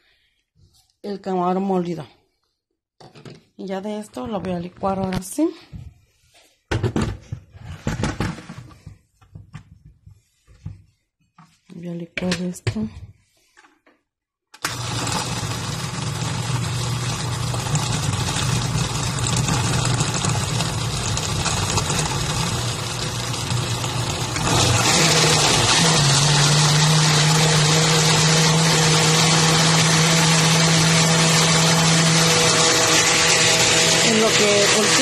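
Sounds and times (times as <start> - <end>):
blender running: 14.6 - 35.0.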